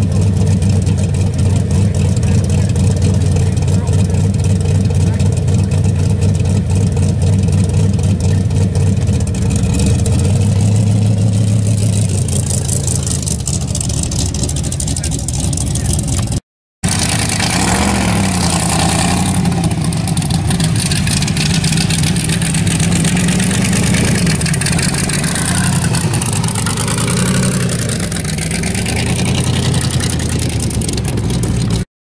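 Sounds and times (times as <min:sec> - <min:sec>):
truck engine running lumpy: 0:00.0 - 0:31.9.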